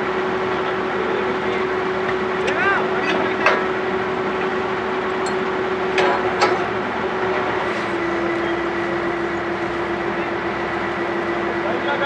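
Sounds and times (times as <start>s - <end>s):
drilling rig engine running: 0.0s - 12.0s
metallic clanks of drill pipe: 3.0s - 3.8s, 5.2s - 6.8s.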